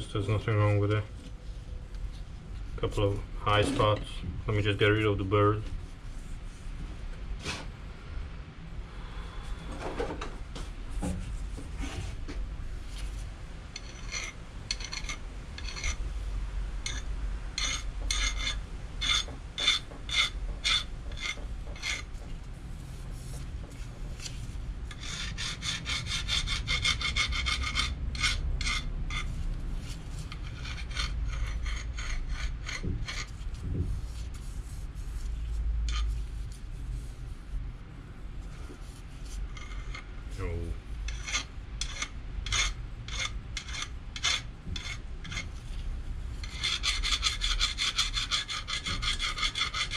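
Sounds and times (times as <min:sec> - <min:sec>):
hand file stroking steel: 0:13.8 - 0:16.0, 0:17.6 - 0:22.1, 0:24.9 - 0:29.3, 0:30.3 - 0:33.4, 0:35.9 - 0:36.1, 0:41.1 - 0:45.5, 0:46.4 - 0:49.9.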